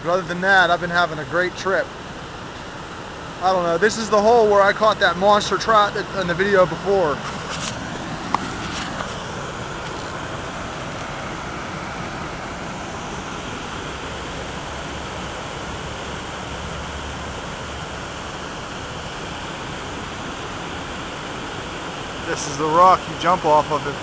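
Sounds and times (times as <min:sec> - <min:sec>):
stream rushing into pool: 0:00.0 - 0:24.0.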